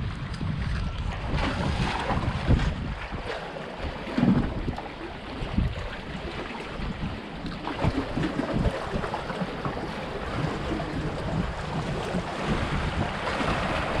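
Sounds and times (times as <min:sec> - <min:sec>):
wind buffeting microphone: 0:00.0 - 0:14.0
waves splashing against rocks: 0:00.4 - 0:14.0.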